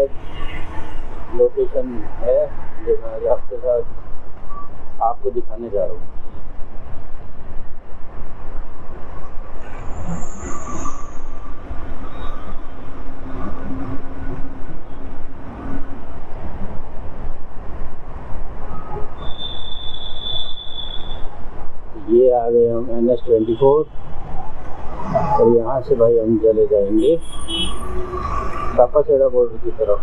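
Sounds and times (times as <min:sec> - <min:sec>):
high-pitched squeals: 0:09.6 - 0:14.2, 0:18.6 - 0:21.4, 0:23.3 - 0:29.0.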